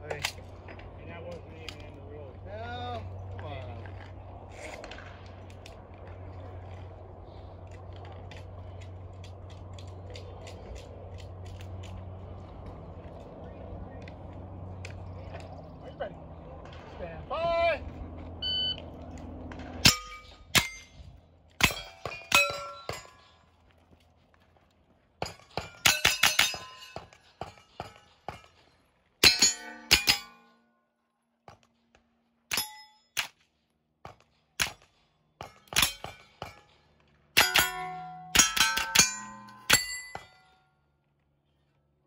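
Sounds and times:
steel target clanging: 19.7s - 20.9s, 21.6s - 23.3s, 25.2s - 28.5s, 29.2s - 30.5s, 32.5s - 33.2s, 35.4s - 36.7s, 37.4s - 40.6s.

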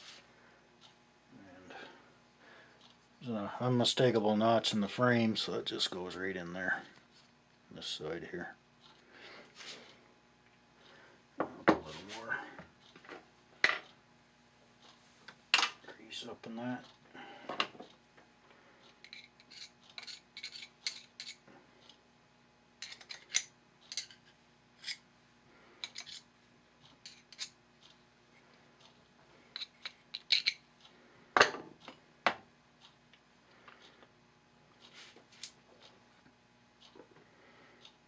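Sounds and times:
metal parts clicking and scraping: 19.0s - 21.4s, 22.8s - 24.2s, 25.8s - 26.3s, 29.6s - 30.6s.

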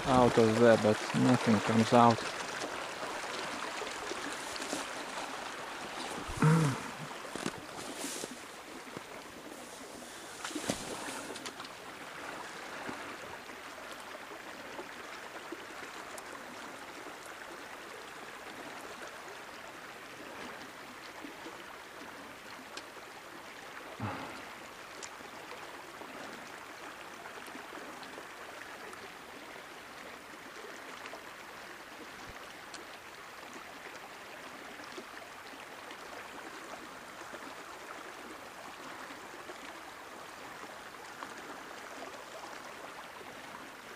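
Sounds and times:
river running over its bed: 0.0s - 43.9s
faint ticks: 22.7s - 22.9s.

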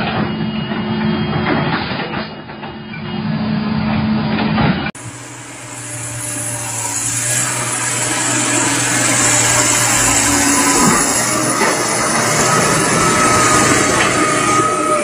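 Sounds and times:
heavy machinery engine grinding: 5.0s - 15.0s.

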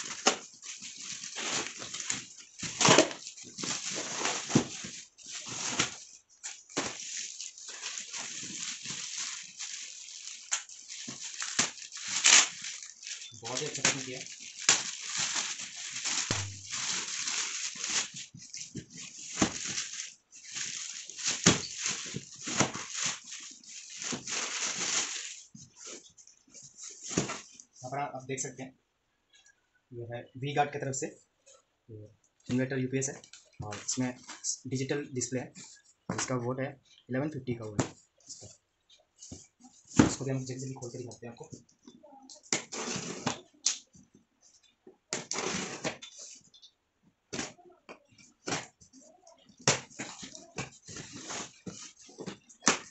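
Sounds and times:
cardboard tearing: 0.0s - 6.0s, 6.8s - 18.2s, 42.6s - 43.4s, 45.2s - 46.0s
plastic bag rustling: 0.0s - 27.6s, 48.3s - 52.9s
plastic wrap crinkling: 0.0s - 27.7s, 47.4s - 52.9s.

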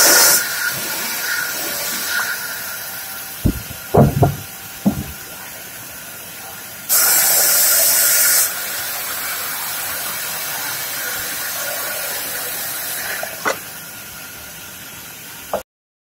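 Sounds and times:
short knock: 3.4s - 5.2s.

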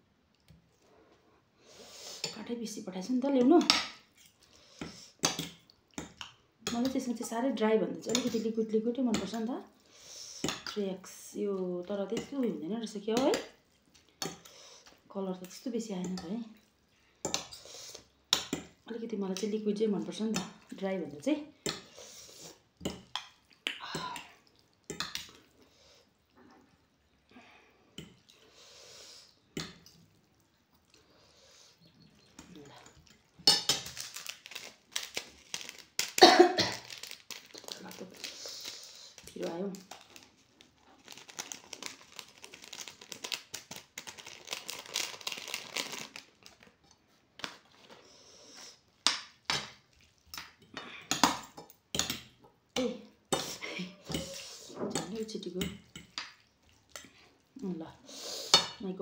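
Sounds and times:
wet squelching of noodles: 0.2s - 58.9s
plastic packet crinkling: 33.8s - 46.8s.

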